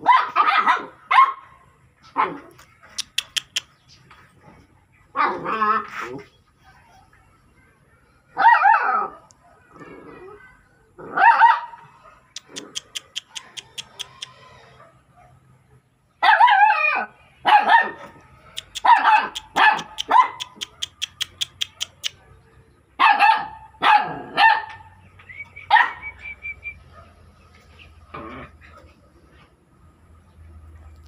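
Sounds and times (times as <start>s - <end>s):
dog barking: 0.0s - 2.9s, 8.3s - 9.7s, 11.1s - 15.5s, 16.2s - 25.0s, 25.7s - 26.2s, 26.8s - 27.2s
quick trains of sharp clicks: 2.9s - 3.9s, 12.3s - 14.4s, 18.5s - 22.2s.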